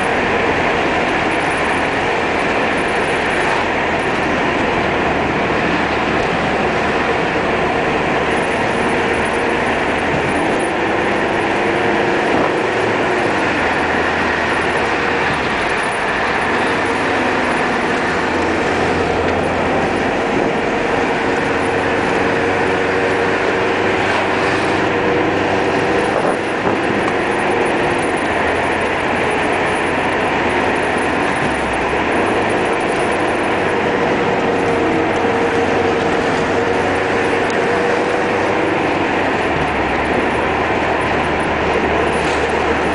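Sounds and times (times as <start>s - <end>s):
car engine and tyre noise: 0.0s - 42.9s.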